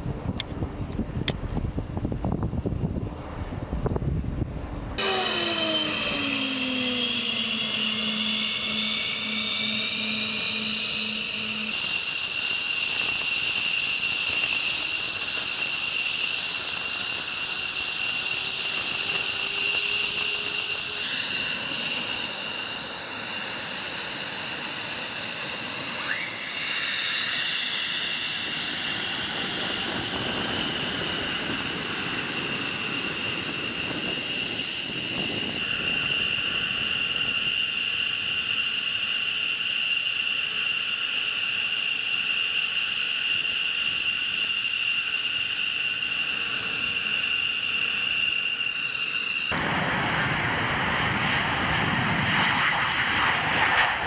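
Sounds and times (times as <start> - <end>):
jet engines idling: 0.0 - 54.0.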